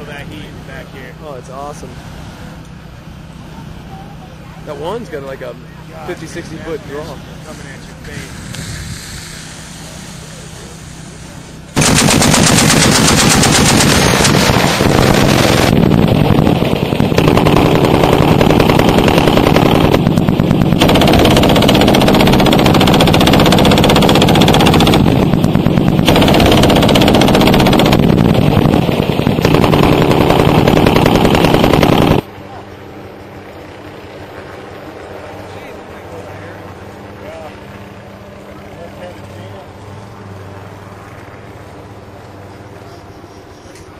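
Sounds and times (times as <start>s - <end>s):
automatic machine-gun fire: 11.8s - 32.3s.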